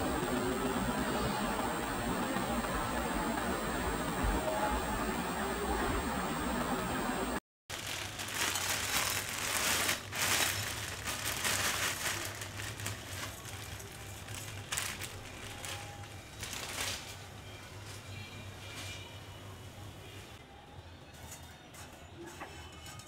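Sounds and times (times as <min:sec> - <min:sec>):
dry vermicelli rustling into pan: 0:07.7 - 0:17.2
plastic packet crinkling: 0:07.7 - 0:17.2.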